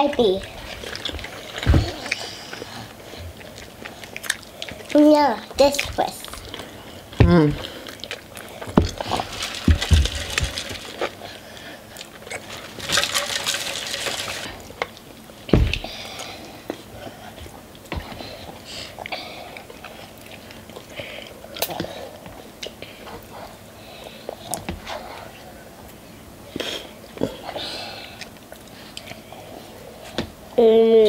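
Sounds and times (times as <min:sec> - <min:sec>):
wet chewing and slurping: 0:00.2 - 0:15.4, 0:16.0 - 0:25.4
forks scraping in paper cups: 0:12.3 - 0:14.6.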